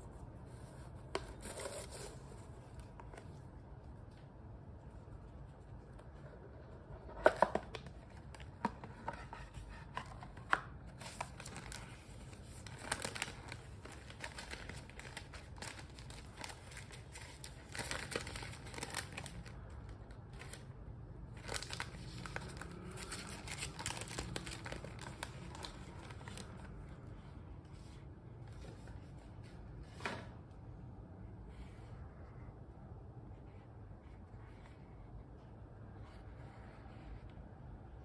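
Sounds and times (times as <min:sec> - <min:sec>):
tissue paper rustling: 0:11.0 - 0:19.4, 0:21.4 - 0:26.5.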